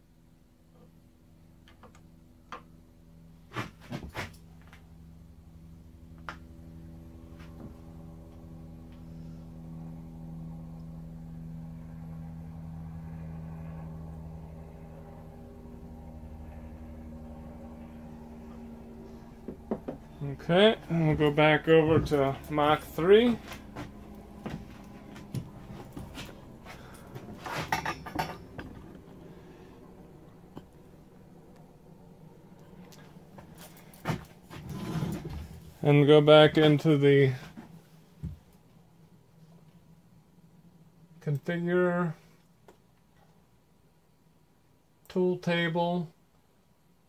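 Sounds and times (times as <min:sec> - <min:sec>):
machinery electrical hum: 0:00.0 - 0:47.0
clattering: 0:27.5 - 0:28.9.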